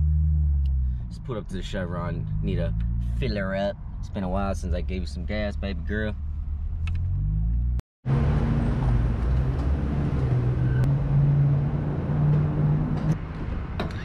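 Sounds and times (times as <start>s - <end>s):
outdoor traffic noise: 0.0s - 14.0s.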